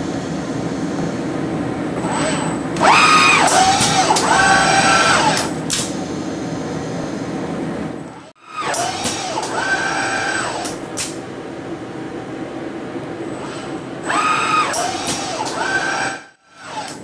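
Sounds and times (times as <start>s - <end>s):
steady hum: 0.0s - 16.4s
robot arm servos whining: 2.0s - 5.9s, 8.4s - 11.2s, 13.4s - 17.0s.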